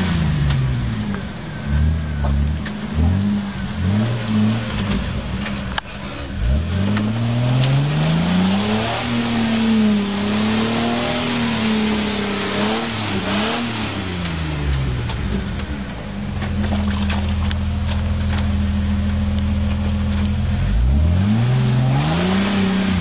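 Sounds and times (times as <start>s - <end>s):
engine revving hard: 1.6s - 5.0s, 6.3s - 15.1s, 20.6s - 23.0s
tyres churning mud: 1.6s - 23.0s.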